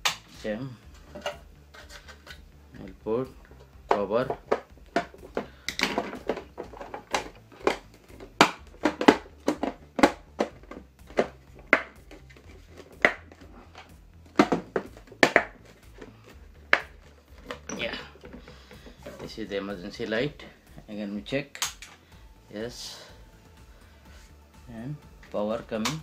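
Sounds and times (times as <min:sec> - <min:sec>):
plastic clicks and knocks: 0:03.9 - 0:16.1.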